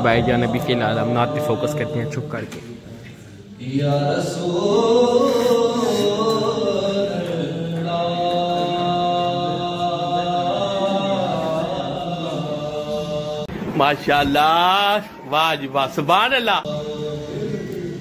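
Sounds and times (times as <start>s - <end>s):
man chanting a recitation: 0.0s - 2.9s, 3.6s - 18.0s.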